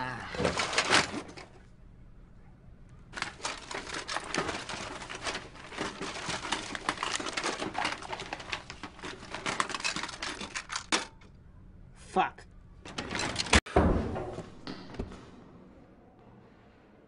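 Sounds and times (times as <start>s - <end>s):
rummaging through desk drawer: 0.4s - 1.6s, 3.1s - 11.2s, 12.9s - 13.7s.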